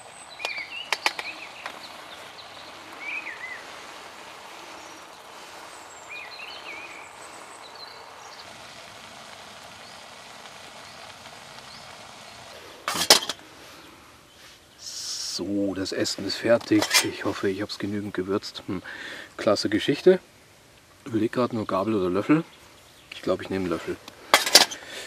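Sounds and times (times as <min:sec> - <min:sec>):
gas stove hissing: 0:00.0 - 0:18.0, 0:23.4 - 0:25.0
songbirds chirping: 0:00.0 - 0:25.0.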